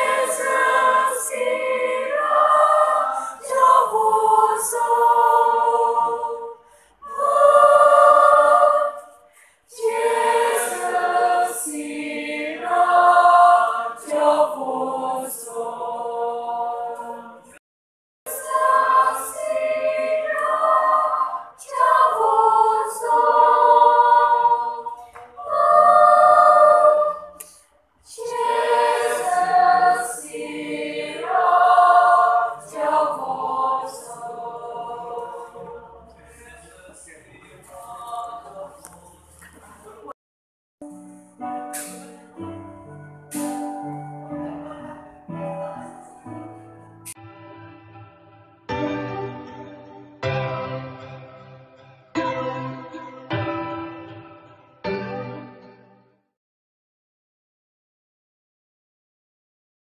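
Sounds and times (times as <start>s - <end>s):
choir singing unaccompanied: 0.0s - 17.6s, 18.3s - 40.2s, 43.3s - 46.4s.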